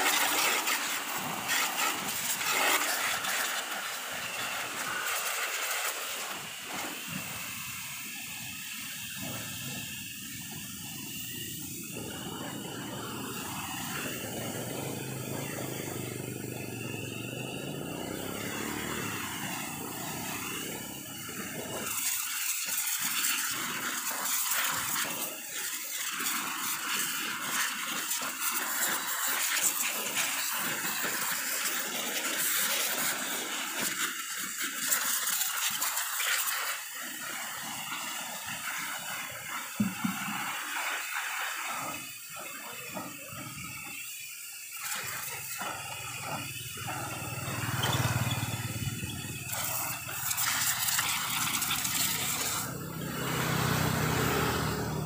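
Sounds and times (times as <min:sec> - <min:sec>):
pressure washer jet hissing: 0:00.0 - 0:55.0
rumbling water: 0:11.3 - 0:23.9.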